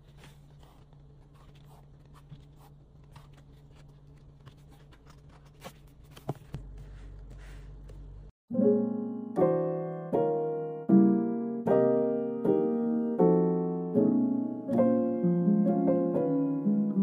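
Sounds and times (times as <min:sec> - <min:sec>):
pages flipping: 0:00.0 - 0:08.0.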